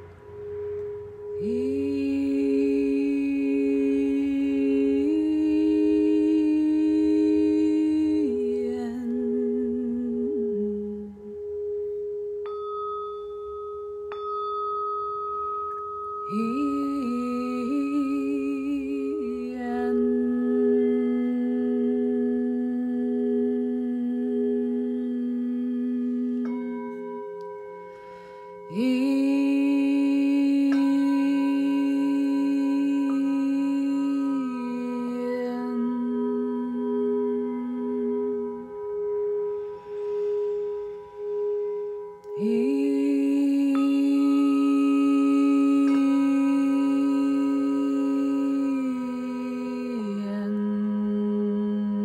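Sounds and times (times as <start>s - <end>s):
person humming wordless notes: 0.0s - 14.8s, 15.4s - 52.0s
singing bowls ringing: 0.0s - 52.0s.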